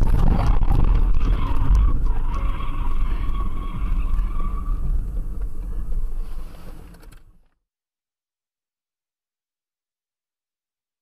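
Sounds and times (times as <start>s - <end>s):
car tyres squealing in a skid: 0.0s - 6.8s
low rumble of road and wind: 0.0s - 7.6s.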